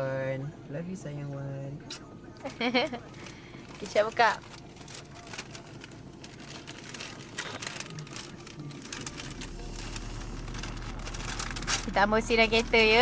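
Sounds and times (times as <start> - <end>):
low steady hum: 0.0 - 13.0
paper and plastic crinkling: 2.5 - 12.9.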